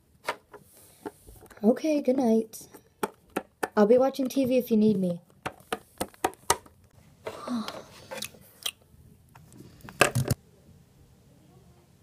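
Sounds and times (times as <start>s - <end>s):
plastic toys clicking and tapping: 2.7s - 4.4s.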